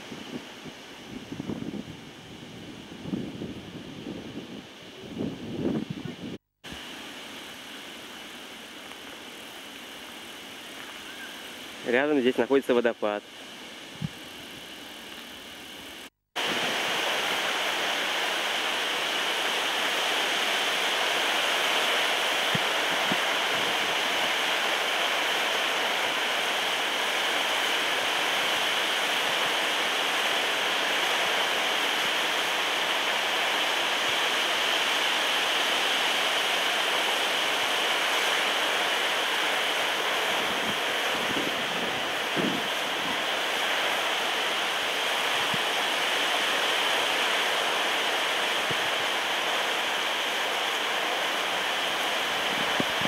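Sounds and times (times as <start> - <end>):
small waterfall rushing: 0.0 - 53.0.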